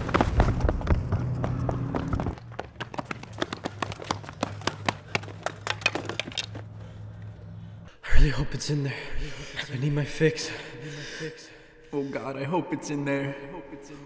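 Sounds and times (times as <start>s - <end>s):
footsteps running on pavement: 0.0s - 6.7s
steady low hum: 0.0s - 12.6s.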